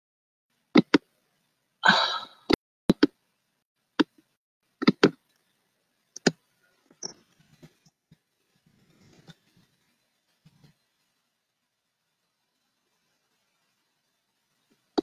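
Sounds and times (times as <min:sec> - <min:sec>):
computer clicks and taps: 0:00.7 - 0:01.1, 0:02.9 - 0:03.2, 0:04.0 - 0:05.4, 0:06.1 - 0:07.9.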